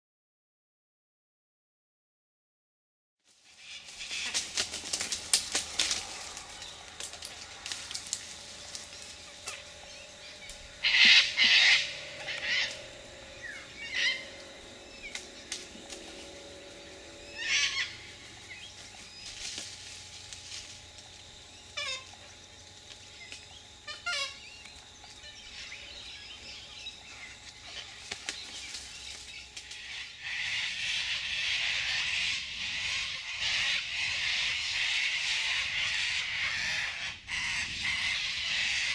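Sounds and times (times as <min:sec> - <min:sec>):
cockatoos screeching: 0:03.5 - 0:19.8, 0:21.4 - 0:22.5, 0:23.8 - 0:28.8, 0:29.7 - 0:38.9.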